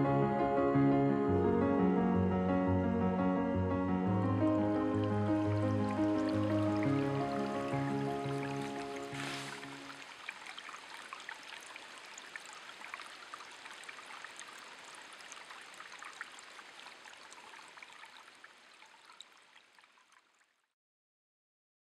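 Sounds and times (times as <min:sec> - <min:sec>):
stream water trickling: 0:04.8 - 0:20.7
water plinks and drips: 0:05.0 - 0:20.5.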